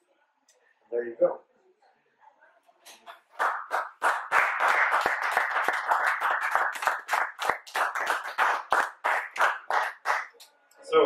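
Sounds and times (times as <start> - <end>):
audience applauding: 3.1 - 10.4.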